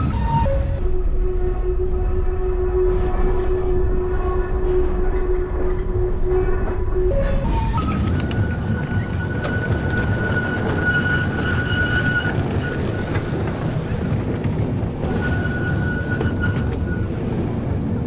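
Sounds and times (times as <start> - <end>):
tram rumbling on rails: 0.0 - 18.0
high steady squeal: 6.3 - 17.8.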